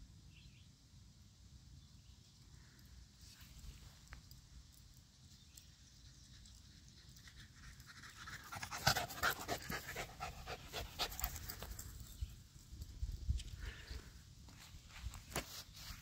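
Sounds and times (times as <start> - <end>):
dog panting rapidly: 8.3 - 11.7.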